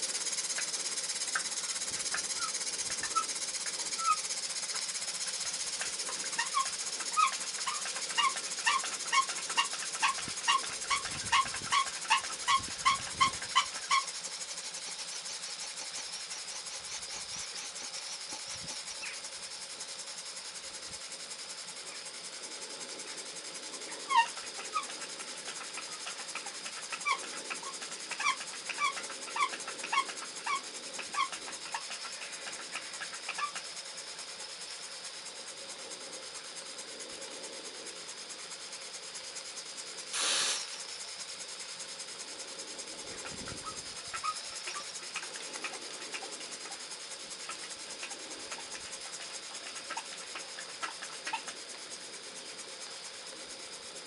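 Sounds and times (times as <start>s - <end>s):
model steam engine hissing: 40.1s - 40.9s.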